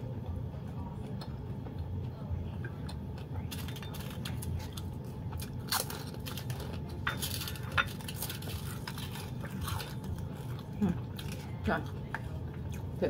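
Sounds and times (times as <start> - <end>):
chewing crisp food: 0.1 - 13.0.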